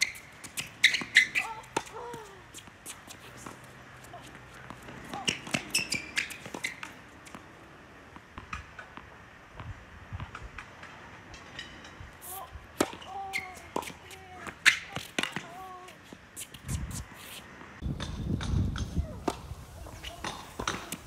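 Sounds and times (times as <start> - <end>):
balls bouncing on hard court: 0.0 - 7.5, 20.0 - 21.0
tennis balls struck by rackets: 0.0 - 12.0, 12.7 - 16.0, 17.6 - 21.0.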